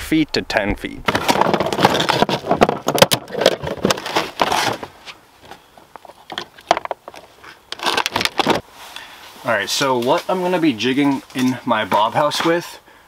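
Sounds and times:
fishing gear rattling in plastic sled: 1.1 - 4.8.

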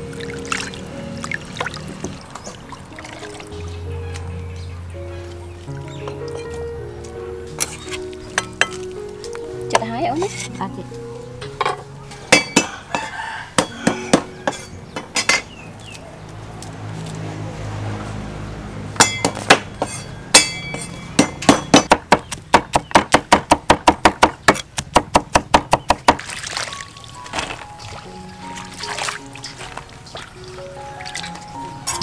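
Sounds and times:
knife chopping on wooden board: 20.8 - 26.2.

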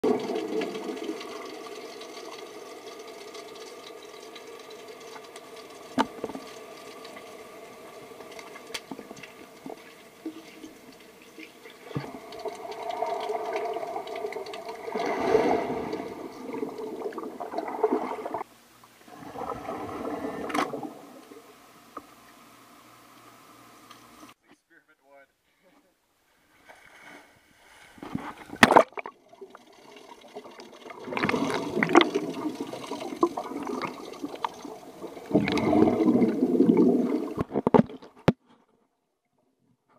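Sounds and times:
underwater swishing and bubbling: 0.0 - 24.4, 26.6 - 38.4
air bubbles from swimmer: 11.7 - 18.4, 28.6 - 37.8.

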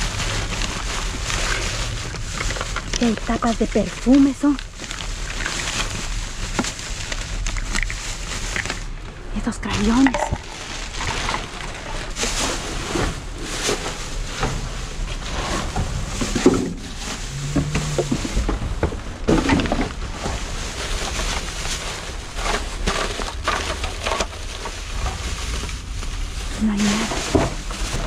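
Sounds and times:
trash rustling and crackling: 0.0 - 28.0
low rumble: 8.8 - 28.0.

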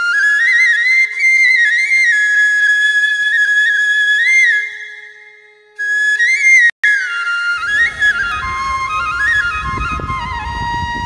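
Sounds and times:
flute-like melody: 0.0 - 11.0.

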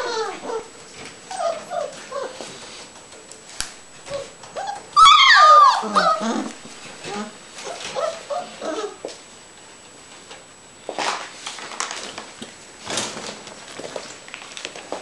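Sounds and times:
puppies whining and yelping: 0.0 - 0.7, 1.3 - 2.5, 4.0 - 9.1.

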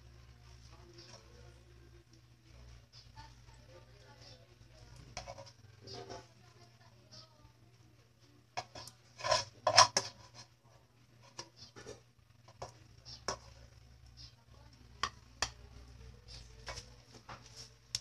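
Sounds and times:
metal spatula scraping frying pan: 5.1 - 6.3, 8.6 - 10.6.

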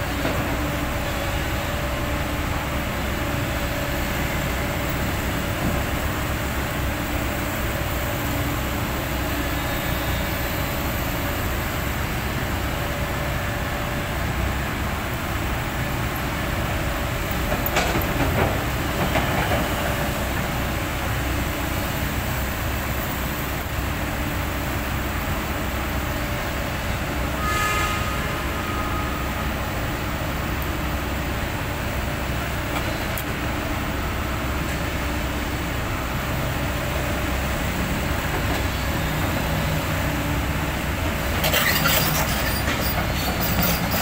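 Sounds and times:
brief pitched squeal: 27.4 - 29.4
heavy machinery engine rumble: 28.1 - 44.0.

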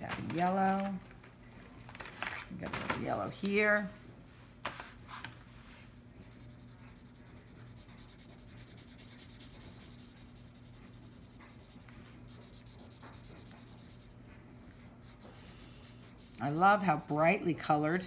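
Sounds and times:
marker scribbling on paper: 6.2 - 14.2, 15.0 - 17.5.

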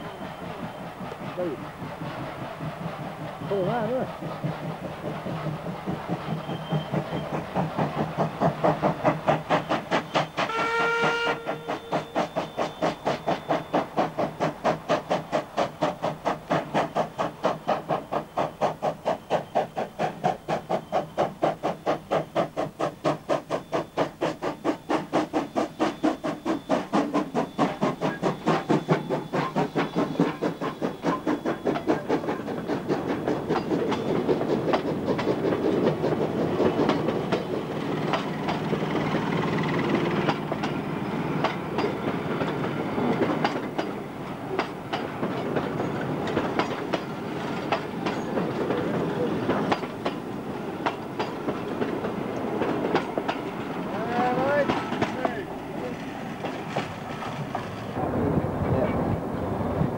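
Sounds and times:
steam locomotive exhaust chuffing: 0.0 - 58.4
train whistle blast: 10.2 - 13.8.

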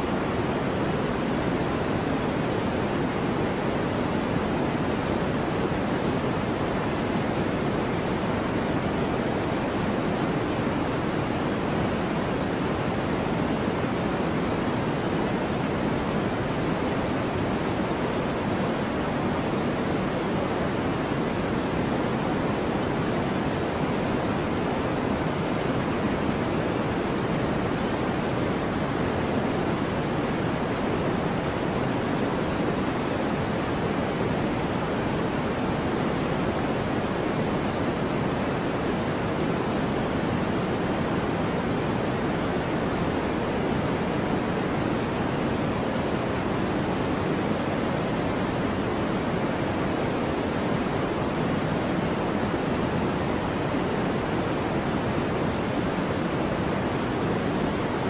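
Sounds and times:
steady low hiss noise: 0.0 - 58.0.

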